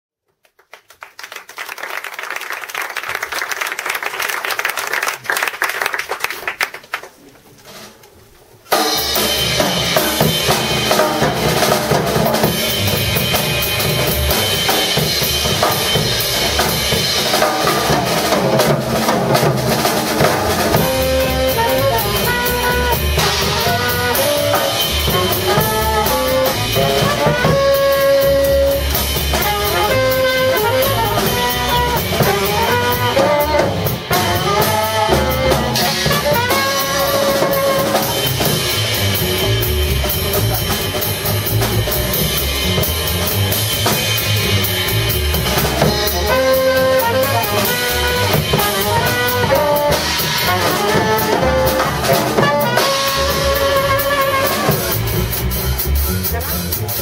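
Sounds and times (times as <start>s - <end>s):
drum kit: 7.4s - 57.0s
trumpet: 8.7s - 57.0s
double bass: 9.2s - 57.0s
tenor saxophone: 20.2s - 41.7s, 44.9s - 56.7s.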